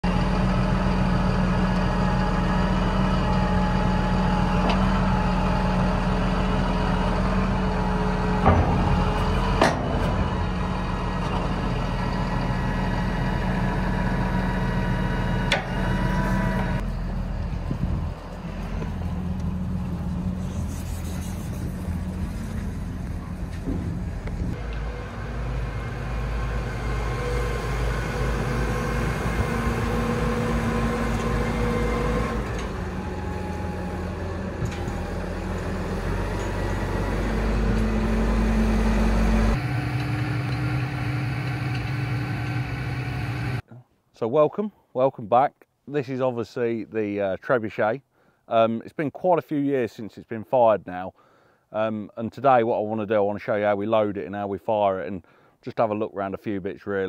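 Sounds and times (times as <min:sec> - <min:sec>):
heavy vehicle engine running: 0:00.0 - 0:43.6.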